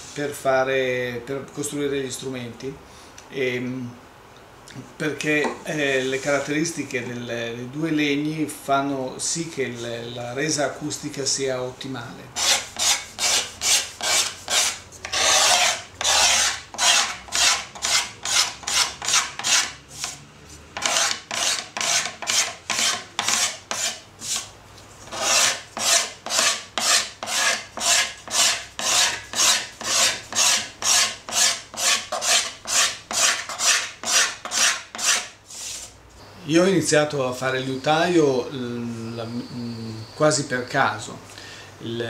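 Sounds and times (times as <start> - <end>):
wood being filed: 12.4 - 20.2, 20.8 - 24.5, 25.1 - 35.9.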